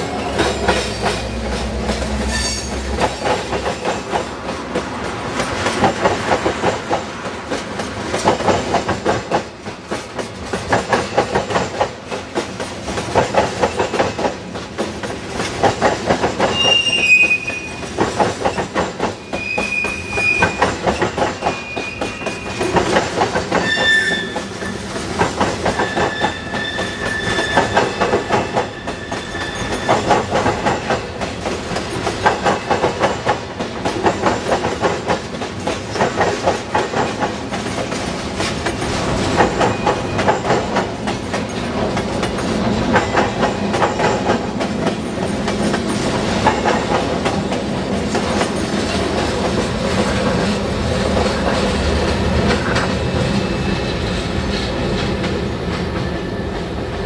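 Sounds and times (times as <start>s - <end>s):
train wheels clacking over rails: 0.0s - 57.0s
high-pitched wheel squeals: 2.3s - 2.9s, 16.5s - 17.8s, 19.2s - 22.6s, 23.6s - 24.8s, 25.8s - 30.1s.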